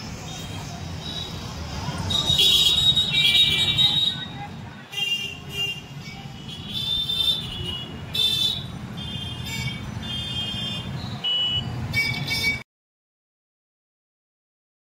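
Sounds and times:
vehicle horns honking: 0:02.1 - 0:12.6.

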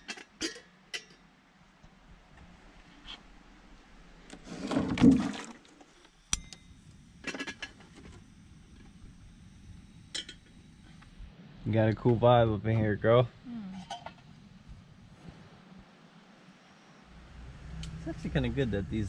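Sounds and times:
water splashing into metal kettle: 0:04.7 - 0:05.7
gas stove igniter click: 0:06.3 - 0:06.6
kettle clinking on burner: 0:06.3 - 0:08.2, 0:10.1 - 0:10.5.

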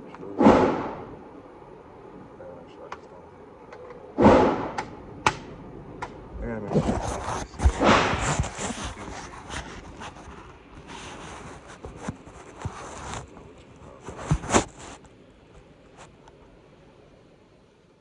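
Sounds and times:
sharp knocks: 0:00.4 - 0:01.1, 0:04.2 - 0:06.2
rustling and scraping: 0:06.0 - 0:16.4.

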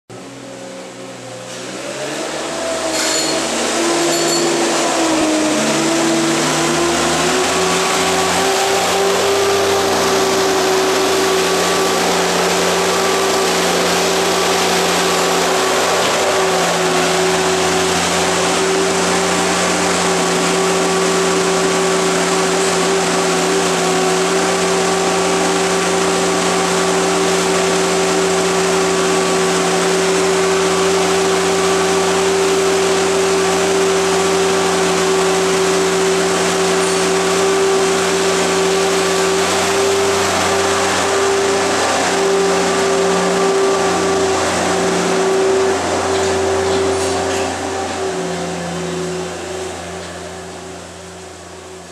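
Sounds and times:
wheel loader engine high revs: 0:00.1 - 0:51.9.

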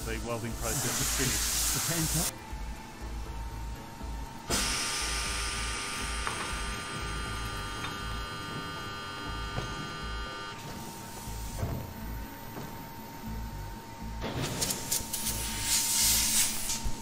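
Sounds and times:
welding machine motor whirring: 0:04.5 - 0:11.6.

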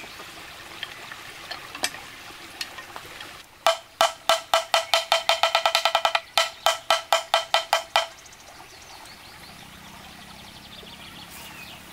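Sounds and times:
bamboo bell struck with stick: 0:03.7 - 0:08.2.

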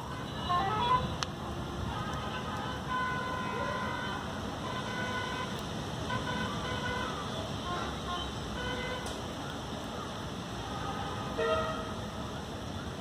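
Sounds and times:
vehicle horns tooting: 0:00.0 - 0:01.2, 0:01.8 - 0:09.2, 0:11.3 - 0:12.0
traffic noise hiss: 0:00.0 - 0:13.0.

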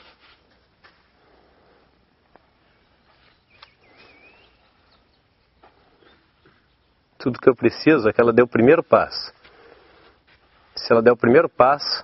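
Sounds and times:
footsteps on sand: 0:00.0 - 0:01.1, 0:09.3 - 0:10.9
wavering bird call: 0:03.5 - 0:05.1.

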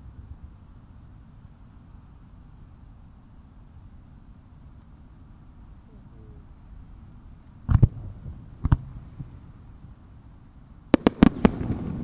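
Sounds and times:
fireworks booming: 0:07.6 - 0:10.0, 0:10.9 - 0:12.0
rolling echo: 0:11.0 - 0:12.0.

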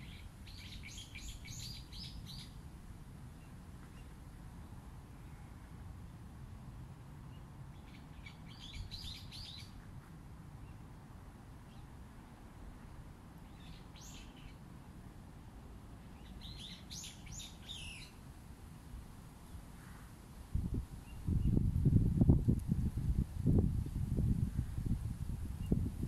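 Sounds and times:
small bird chirping: 0:00.0 - 0:02.6, 0:07.3 - 0:09.8, 0:13.5 - 0:14.6, 0:16.2 - 0:18.2.

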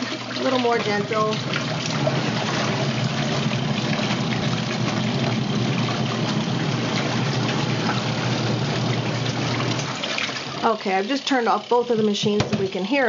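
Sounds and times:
washing machine motor hum: 0:00.0 - 0:13.0
water churning in tubs: 0:00.0 - 0:13.0.

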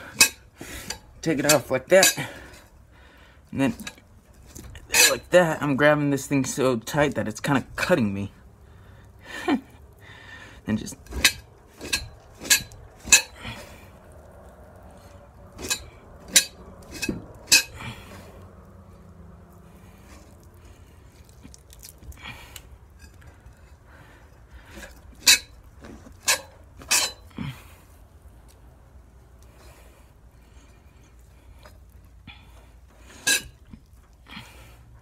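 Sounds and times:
blade scraping hide: 0:00.0 - 0:02.8, 0:10.7 - 0:21.5, 0:22.2 - 0:27.8.

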